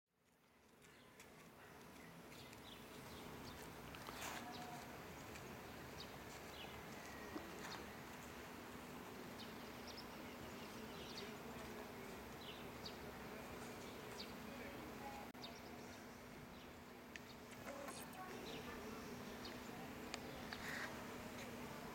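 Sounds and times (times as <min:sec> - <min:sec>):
steady low hum and hiss: 0:00.3 - 0:21.9.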